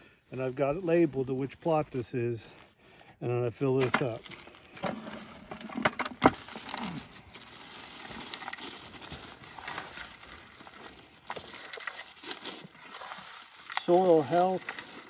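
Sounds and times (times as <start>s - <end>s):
soil scooped from plastic bucket: 3.6s - 15.0s
plastic bag crinkling: 3.8s - 15.0s.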